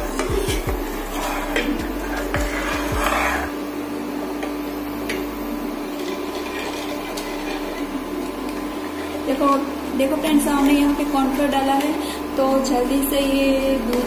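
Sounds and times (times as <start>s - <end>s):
spatula scraping a pan: 0.0s - 3.6s, 5.9s - 9.3s
spatula stirring in a pan: 0.0s - 3.7s, 4.4s - 9.7s
steady hum: 0.0s - 14.0s.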